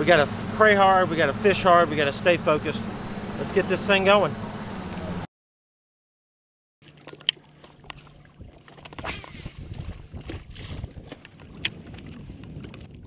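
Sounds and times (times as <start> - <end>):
trolling motor humming: 0.0 - 5.3
water lapping: 6.8 - 13.0.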